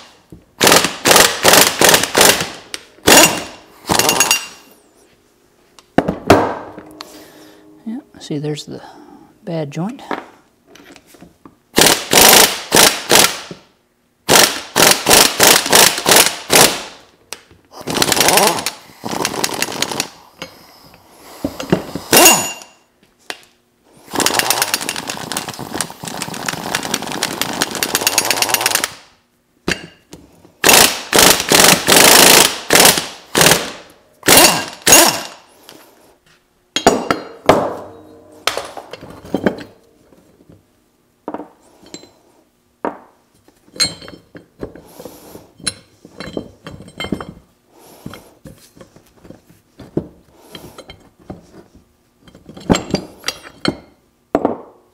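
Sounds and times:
impact wrench hammering: 0:00.6 - 0:04.7, 0:06.0 - 0:07.2, 0:21.4 - 0:22.8, 0:30.6 - 0:35.4, 0:36.8 - 0:39.7.

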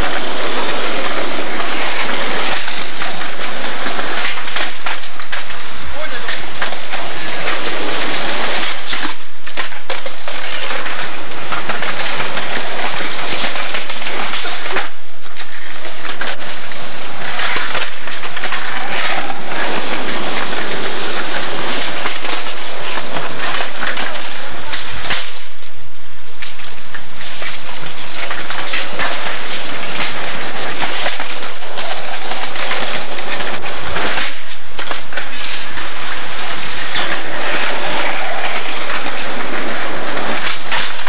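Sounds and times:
skateboards rolling on concrete: 0:00.0 - 0:25.7, 0:26.4 - 0:41.0
loud microphone rushing noise: 0:16.4 - 0:25.6, 0:35.6 - 0:41.0.

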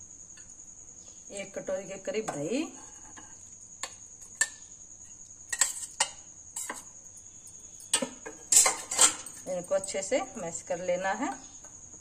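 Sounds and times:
metal spoon clinking in bowl: 0:07.8 - 0:10.0.

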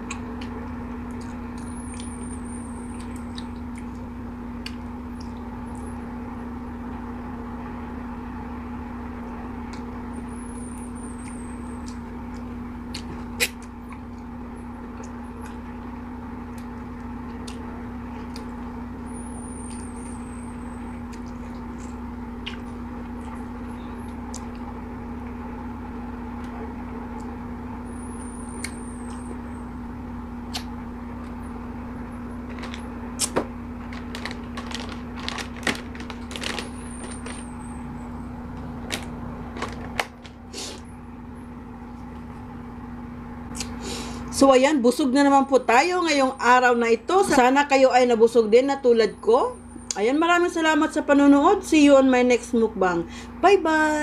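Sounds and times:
steady low hum: 0:00.0 - 0:54.0
mango being bitten and chewed: 0:11.2 - 0:14.3, 0:21.0 - 0:24.7, 0:30.4 - 0:31.4, 0:33.1 - 0:33.4.

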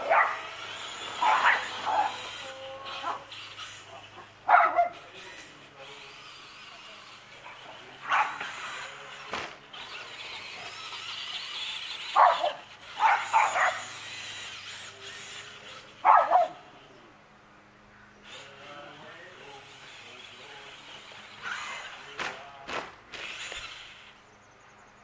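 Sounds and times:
dog barking: 0:00.0 - 0:00.5, 0:01.2 - 0:02.2, 0:04.4 - 0:05.0, 0:08.0 - 0:08.4, 0:12.2 - 0:13.9, 0:16.0 - 0:16.6.

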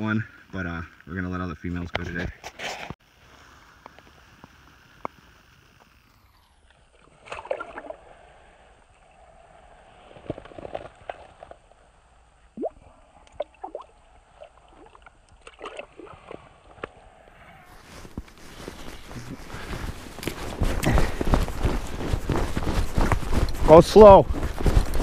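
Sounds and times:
water sloshing and splashing: 0:12.6 - 0:16.5.

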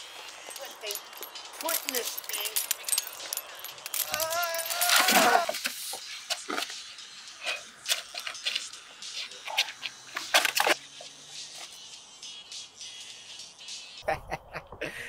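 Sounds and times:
short wavering cry: 0:04.0 - 0:05.6.

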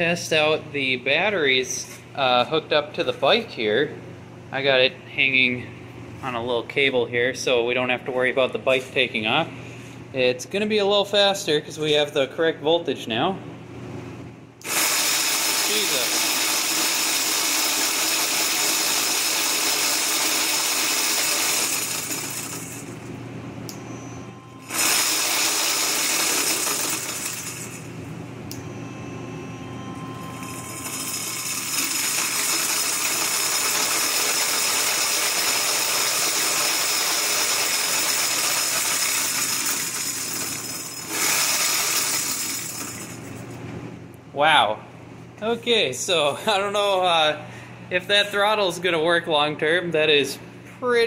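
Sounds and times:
electric motor running: 0:14.6 - 0:23.1, 0:24.6 - 0:27.9, 0:30.2 - 0:43.2.

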